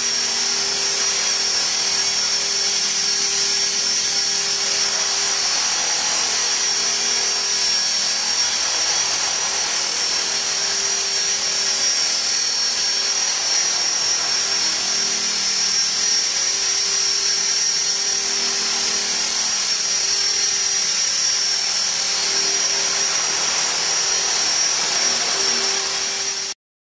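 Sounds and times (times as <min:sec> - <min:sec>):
rc helicopter motor whine: 0:00.0 - 0:26.6.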